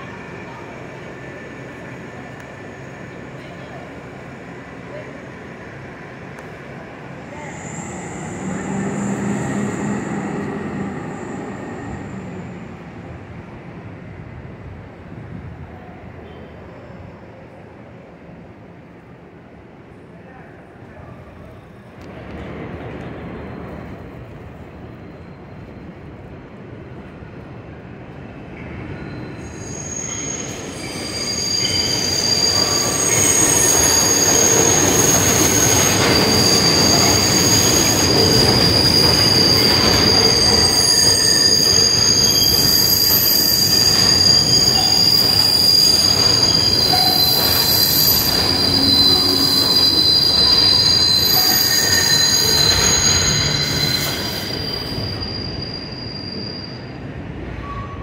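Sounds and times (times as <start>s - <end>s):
steel wheels squealing on rails: 7.0s - 13.6s, 22.8s - 26.3s, 28.4s - 58.0s.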